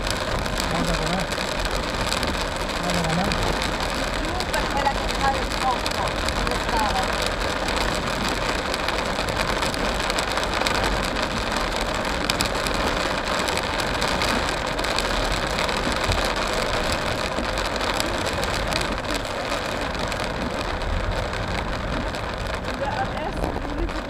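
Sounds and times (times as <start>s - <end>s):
rain on car windscreen: 0.0s - 24.0s
tyres on wet road: 0.0s - 24.0s.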